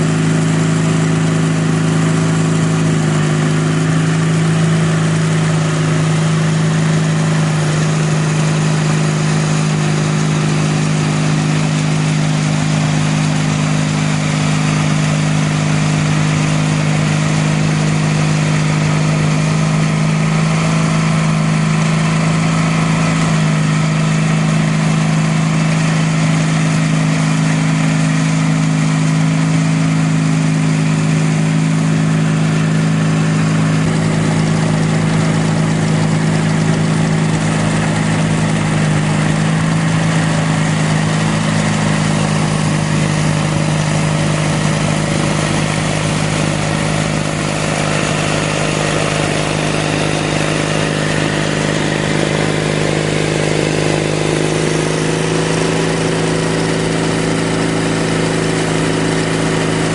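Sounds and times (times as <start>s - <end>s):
snowblower rushing: 0.0s - 59.9s
tractor engine running: 0.0s - 59.9s.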